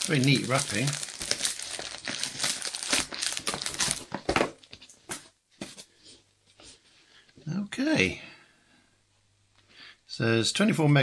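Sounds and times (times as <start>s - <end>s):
plastic wrap crinkling: 0.0s - 4.9s.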